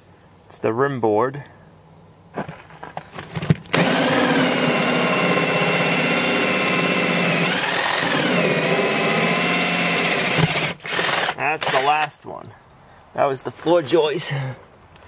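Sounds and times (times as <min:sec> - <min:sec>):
drill knocks: 0:03.2 - 0:11.8
cordless drill whining: 0:03.7 - 0:12.0.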